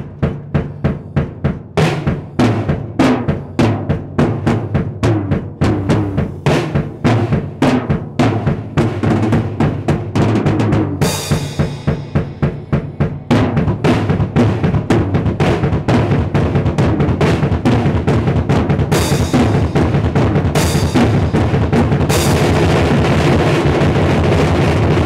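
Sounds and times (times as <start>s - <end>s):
double-bass-pedal kick drum: 0.0s - 25.0s
snare and tom drum strokes: 0.0s - 25.0s
cymbal crash ringing: 11.0s - 14.8s.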